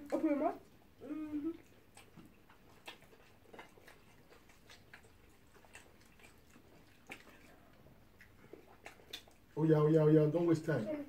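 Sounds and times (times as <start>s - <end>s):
people chewing: 0.0s - 11.0s
person humming: 1.0s - 1.6s.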